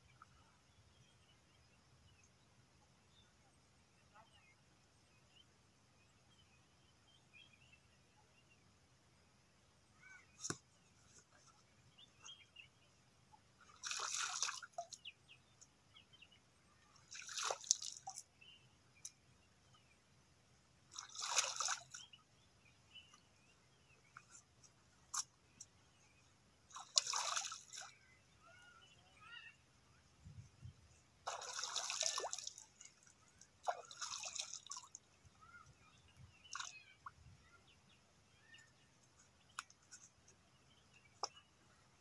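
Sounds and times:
water splashing by hand: 13.6s - 15.1s, 17.0s - 18.3s, 20.9s - 22.1s, 26.7s - 28.0s, 31.2s - 35.1s, 36.4s - 37.0s
water dripping: 31.3s - 35.1s.

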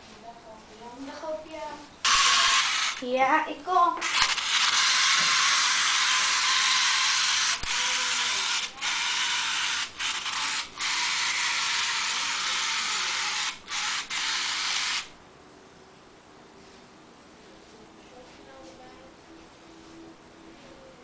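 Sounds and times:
toy car mechanism whirring: 2.0s - 3.1s, 4.0s - 15.1s.

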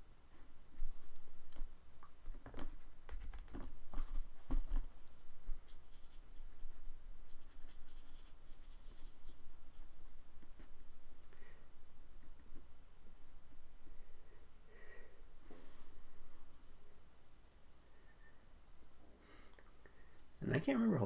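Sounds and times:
paintbrush stroking paper: 5.6s - 9.9s.

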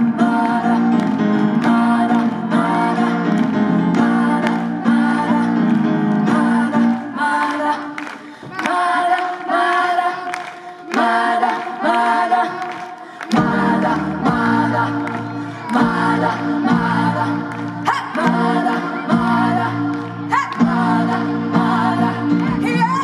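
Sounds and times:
piano accompaniment: 0.0s - 7.7s, 13.4s - 23.0s
women singing: 0.0s - 23.0s.

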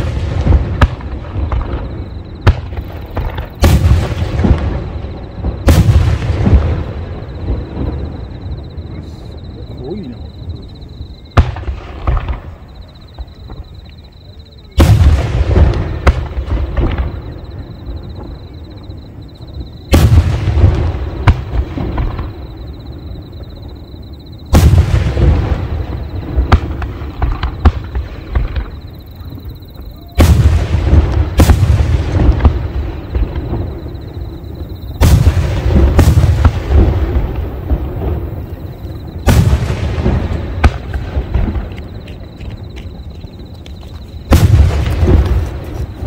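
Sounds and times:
firework shells booming: 0.0s - 9.5s, 11.3s - 13.6s, 14.8s - 19.2s, 19.9s - 23.7s, 24.4s - 43.4s, 44.2s - 46.0s
small firework pops: 26.5s - 28.8s, 39.2s - 46.0s
firework crackle: 34.6s - 46.0s.

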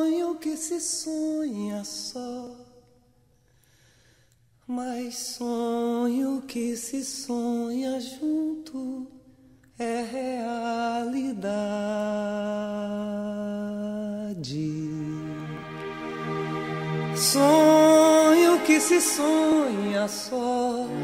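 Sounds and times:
person singing slow song: 9.8s - 21.0s.

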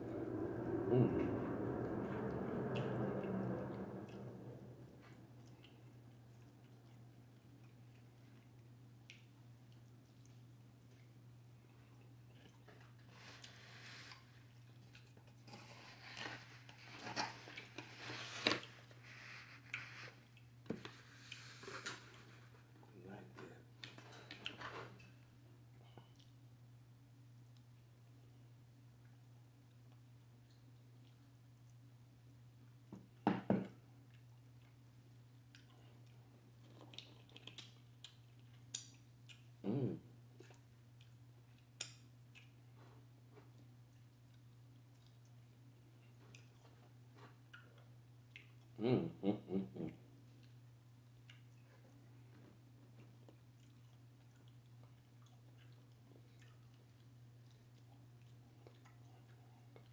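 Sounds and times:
low hum: 0.0s - 11.1s
steady low hum: 0.0s - 59.9s
chewing and smacking: 5.0s - 13.0s, 14.1s - 15.6s, 23.8s - 26.4s, 34.0s - 39.6s, 40.4s - 48.8s, 50.2s - 59.9s
person chewing: 35.4s - 39.5s, 49.8s - 52.1s, 52.8s - 59.9s
lip smacks: 53.3s - 59.9s.

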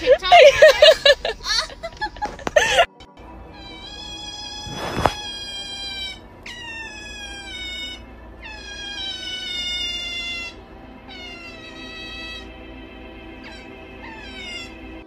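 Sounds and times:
otter squealing: 3.5s - 12.5s, 13.4s - 14.9s.

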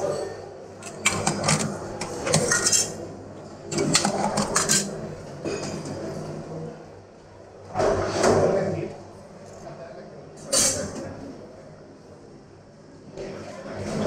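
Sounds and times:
metal utensils clattering on trays: 0.0s - 6.1s, 10.4s - 11.0s.

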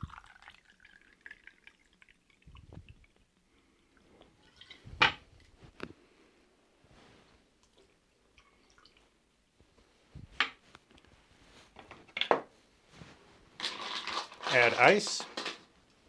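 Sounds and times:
liquid trickling into glass: 0.0s - 3.2s.

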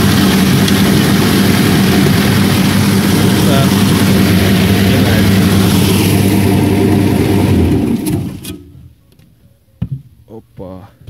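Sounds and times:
fodder cutter motor humming: 0.0s - 8.6s.

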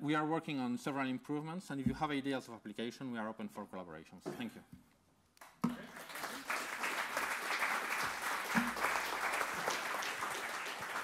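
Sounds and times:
audience clapping: 5.4s - 11.0s.

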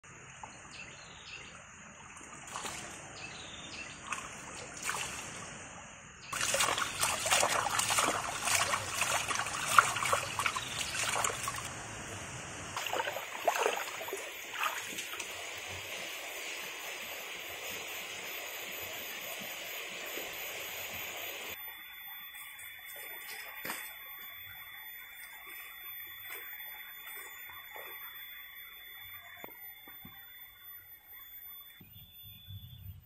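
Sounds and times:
hands splashing water: 2.2s - 3.0s, 4.0s - 5.4s, 6.4s - 11.7s, 12.8s - 15.3s.

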